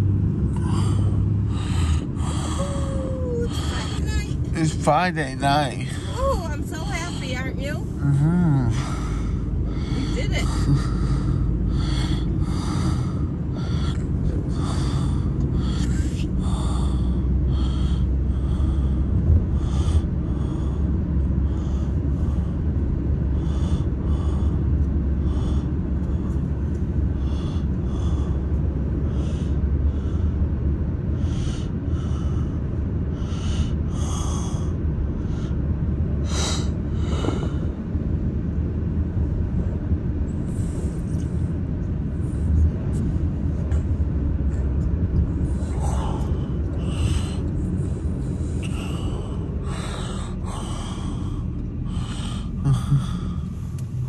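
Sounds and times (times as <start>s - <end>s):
car cabin road rumble: 0.0s - 54.0s.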